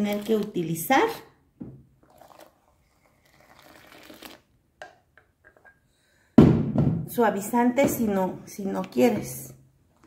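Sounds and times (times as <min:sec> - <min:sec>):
liquid soap pouring: 0:02.0 - 0:04.6.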